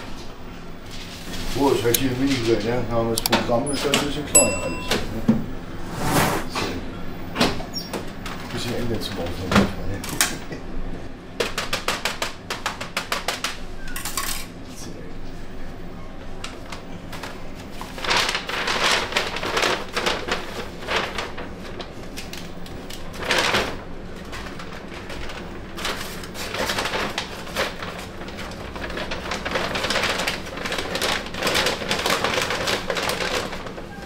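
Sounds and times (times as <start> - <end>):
kitchen utensils clattering: 4.4 - 5.3.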